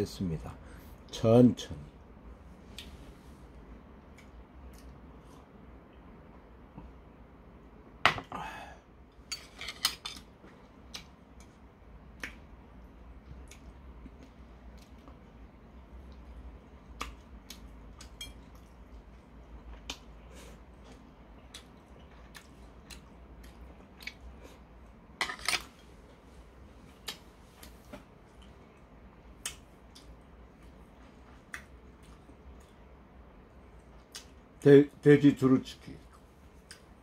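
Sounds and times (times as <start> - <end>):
man chewing food: 10.2 - 25.1, 25.7 - 34.6.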